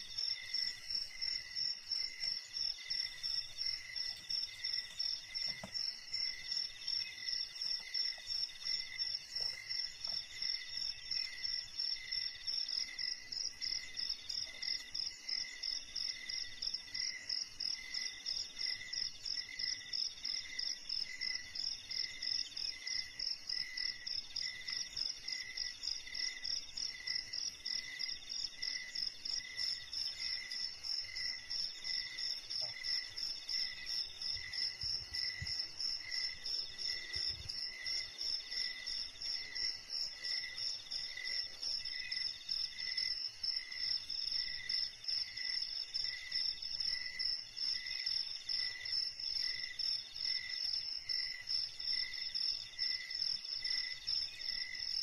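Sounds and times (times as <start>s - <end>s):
insect trill: 0.0s - 55.0s
lower slower insect chirp: 0.0s - 55.0s.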